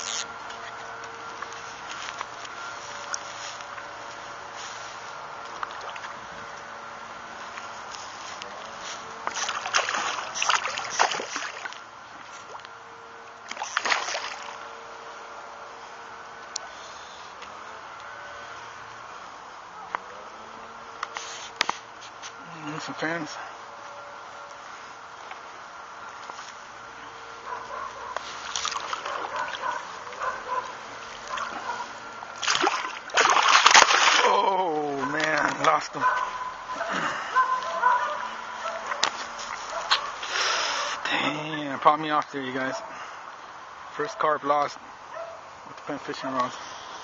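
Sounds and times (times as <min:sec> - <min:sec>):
fish splashing in water: 0:05.6 - 0:06.2, 0:09.2 - 0:11.8, 0:13.4 - 0:14.6, 0:28.4 - 0:35.6
fish splashing at surface: 0:09.3 - 0:11.8, 0:13.5 - 0:14.6, 0:32.4 - 0:34.4.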